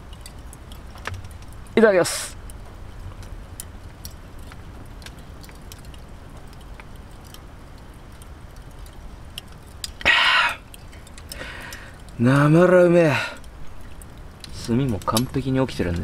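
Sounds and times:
faint ticks: 0:02.4 - 0:12.5
breathy exhale: 0:10.0 - 0:10.6, 0:11.3 - 0:12.0
man swallowing: 0:10.0 - 0:10.7.

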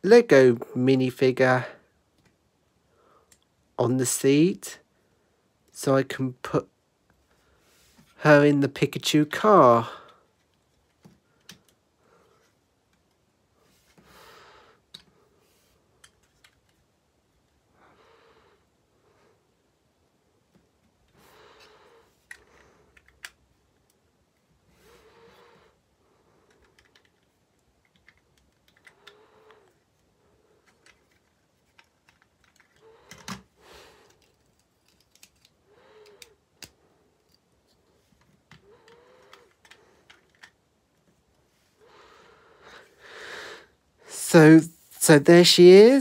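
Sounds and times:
soft breaths: 0:07.1 - 0:08.3, 0:09.8 - 0:16.7, 0:17.5 - 0:46.0
plastic bricks clicking: 0:26.5 - 0:29.2, 0:30.6 - 0:37.4, 0:38.5 - 0:40.6.

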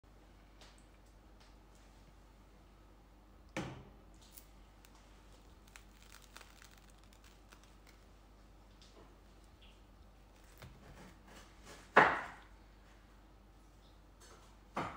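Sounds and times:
pizza crust crackling: 0:04.3 - 0:11.9.

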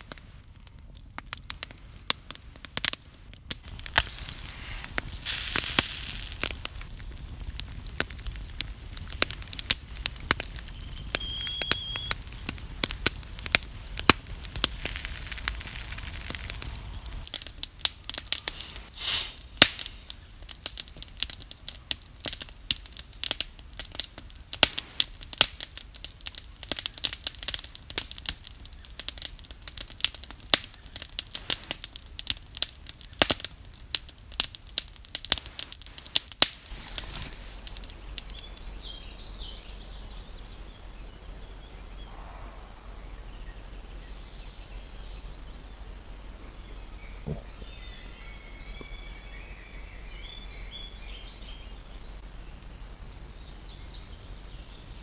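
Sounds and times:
fire hissing: 0:00.0 - 0:39.1
campfire crackling and popping: 0:00.0 - 0:39.5.

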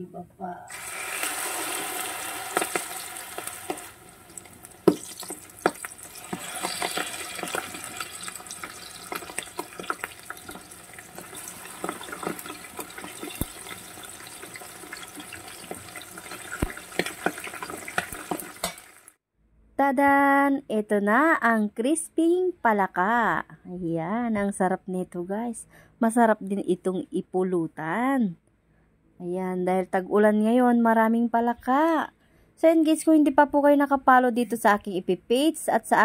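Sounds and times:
deep-frying sizzle in oil: 0:00.7 - 0:19.2
spattering oil crackles and pops: 0:02.4 - 0:19.2.

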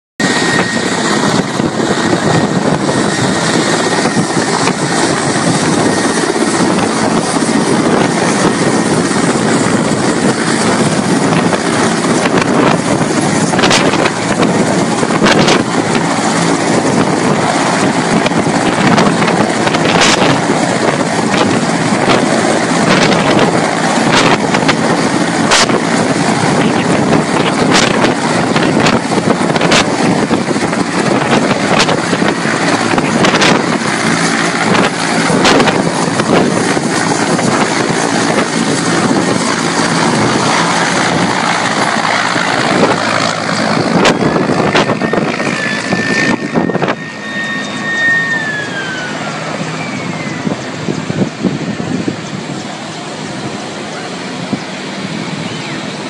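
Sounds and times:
helicopter engines whining: 0:00.2 - 0:56.0
helicopter rotor beating: 0:00.2 - 0:56.0
wind buffeting microphone: 0:00.2 - 0:56.0.

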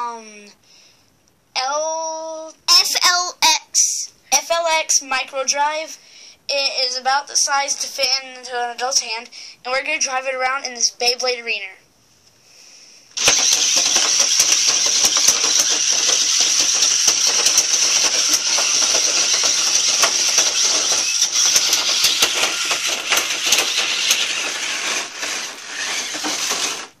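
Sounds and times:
electric motors whining: 0:13.2 - 0:27.0
toy car clicking and knocking: 0:13.2 - 0:27.0.

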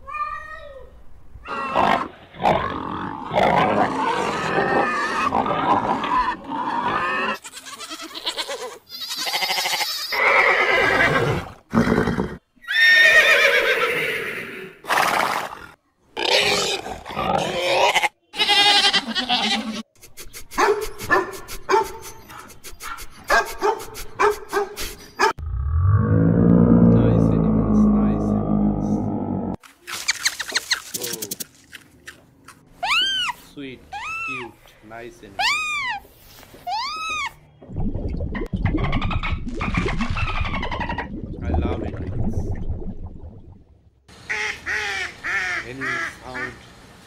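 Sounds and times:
horse neighing: 0:09.2 - 0:15.5.

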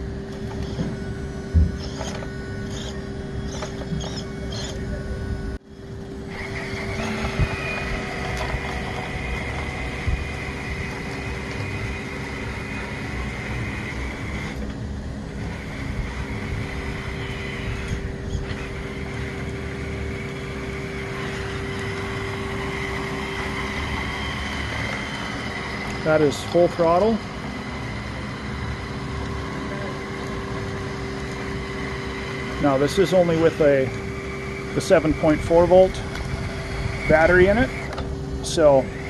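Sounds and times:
electric motor whining: 0:00.0 - 0:39.0.

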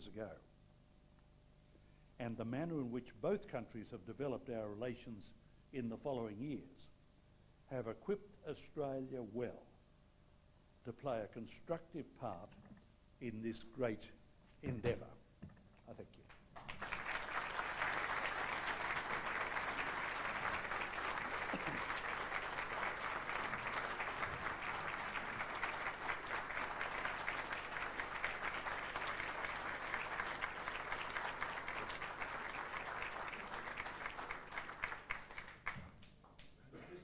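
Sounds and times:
audience applauding: 0:16.6 - 0:36.0.

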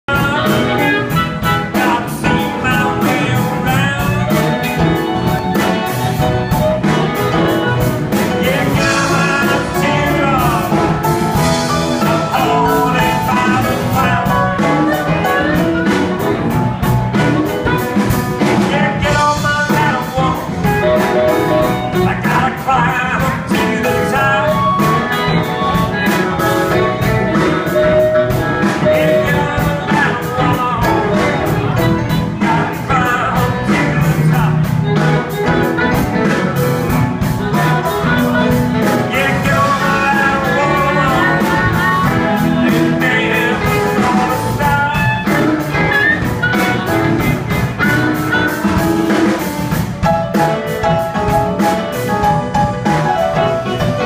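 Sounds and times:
bass: 0:00.0 - 0:54.0
drums: 0:00.0 - 0:54.0
electric guitars: 0:00.0 - 0:54.0
blues harmonica lead: 0:00.1 - 0:54.0.

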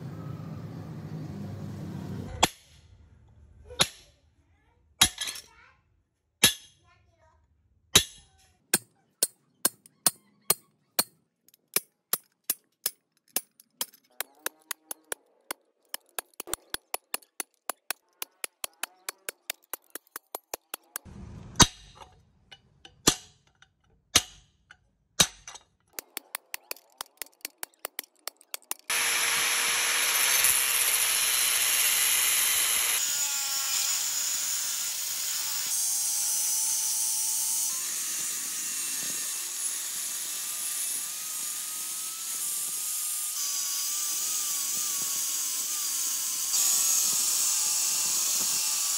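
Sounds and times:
angle grinder cutting steel: 0:13.4 - 0:21.1, 0:26.0 - 0:48.9
hammer tapping chisel on metal: 0:15.9 - 0:21.1, 0:22.5 - 0:28.9.

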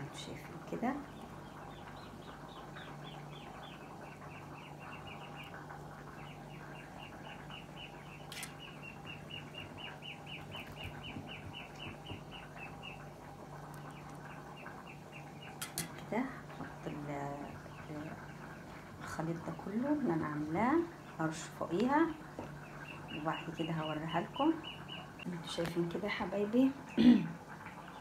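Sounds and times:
steady low hum: 0:00.0 - 0:28.0
bird chirping: 0:00.9 - 0:15.9, 0:22.0 - 0:25.3.

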